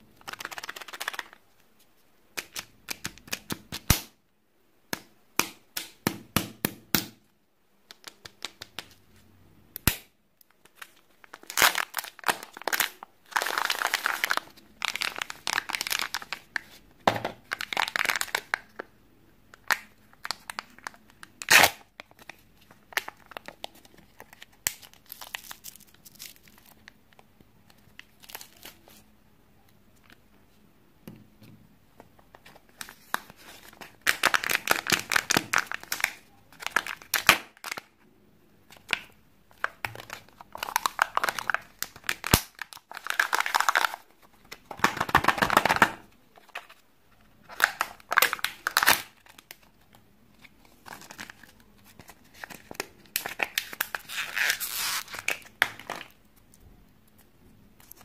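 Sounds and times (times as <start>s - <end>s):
plastic wrapper crinkling and tearing: 0.2s - 1.4s, 10.4s - 16.8s, 17.4s - 18.9s, 19.5s - 29.0s, 32.3s - 38.0s, 38.7s - 56.2s.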